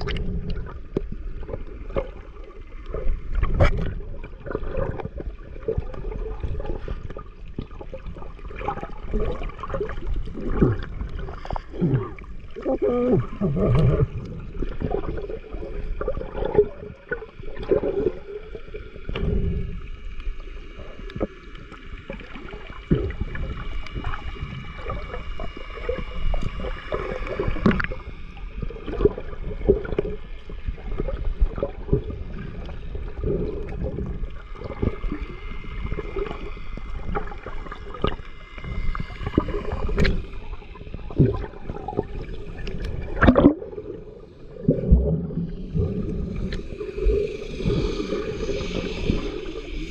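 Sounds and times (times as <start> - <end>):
muffled underwater bubbling: 0.0 - 49.9
low underwater knocks: 43.2 - 43.6.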